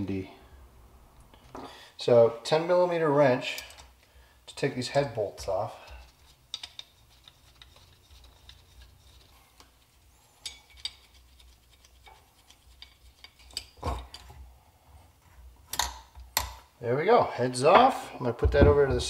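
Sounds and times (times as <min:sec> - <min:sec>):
loud knocks: 0:18.4 - 0:19.0.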